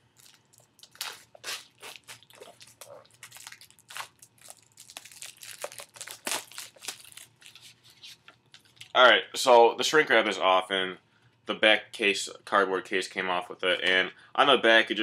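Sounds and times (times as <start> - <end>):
plastic shrink wrap crinkling: 0.0 - 9.0.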